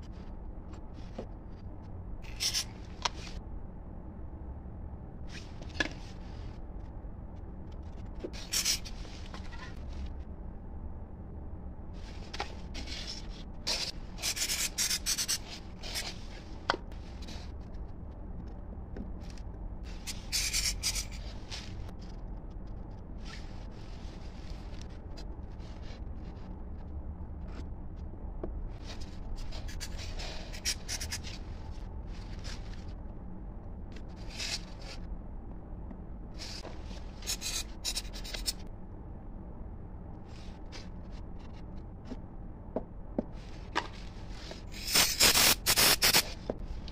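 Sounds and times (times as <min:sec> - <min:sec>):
steady low hum: 0:00.0 - 0:46.9.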